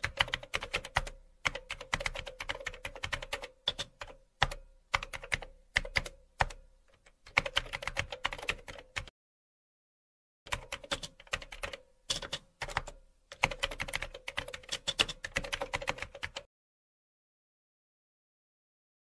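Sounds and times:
rapid irregular clicking: 10.5 - 16.5.

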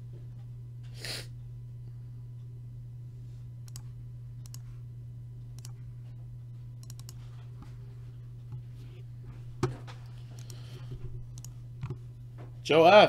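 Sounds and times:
steady low hum: 0.0 - 13.0
computer mouse clicking: 3.6 - 4.6, 5.5 - 5.8, 6.8 - 7.7, 10.0 - 12.0.

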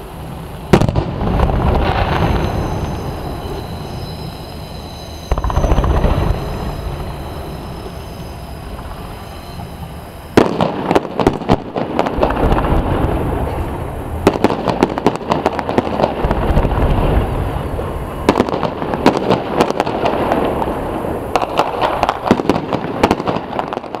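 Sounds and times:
fireworks crackling and popping: 0.0 - 24.0
low rumble: 1.0 - 10.5.

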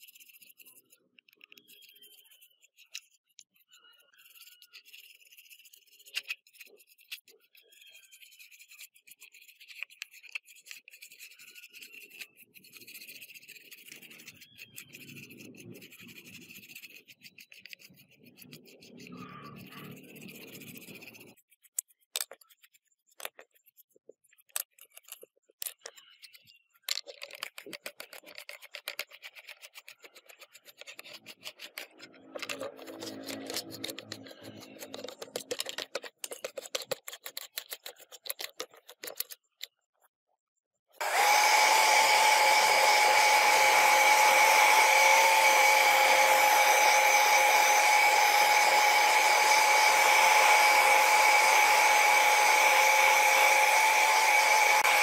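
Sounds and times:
scrubbing on a hard surface: 4.2 - 25.0.

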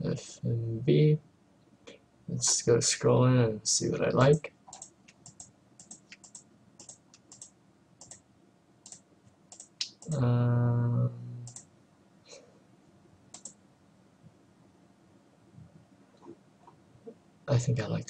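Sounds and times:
computer mouse clicking: 4.7 - 8.2, 8.8 - 10.2, 11.4 - 11.7, 13.3 - 13.6.

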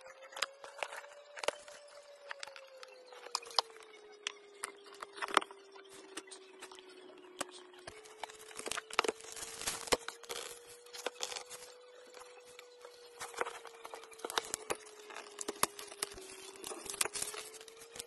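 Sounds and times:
scissors cutting cardboard: 8.1 - 18.0.

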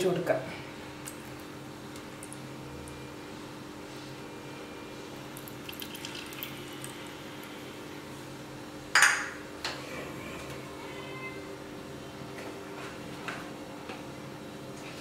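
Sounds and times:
oil pouring into clay pot: 5.2 - 7.6
kitchenware clattering: 9.0 - 9.4.

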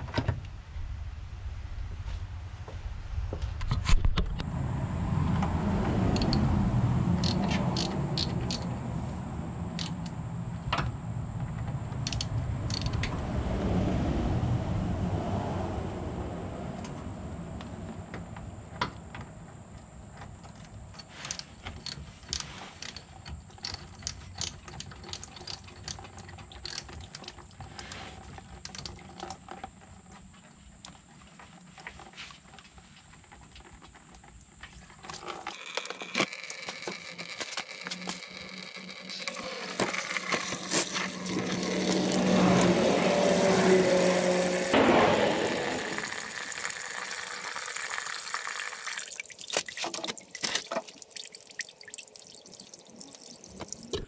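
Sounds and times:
hand tools clattering: 35.1 - 43.5
coolant pouring into container: 35.5 - 53.9.

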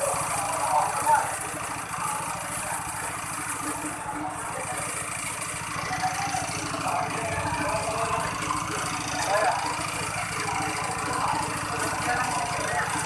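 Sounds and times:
small petrol engine running: 0.0 - 13.0.

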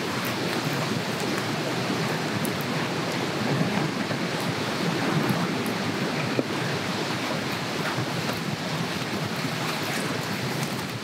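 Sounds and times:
campfire crackling and popping: 0.0 - 2.7.

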